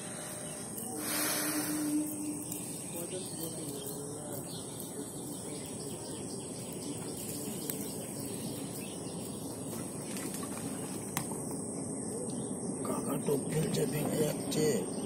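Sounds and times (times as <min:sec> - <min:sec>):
high-pitched whine: 0:00.0 - 0:04.4
faint chirps: 0:00.0 - 0:15.0.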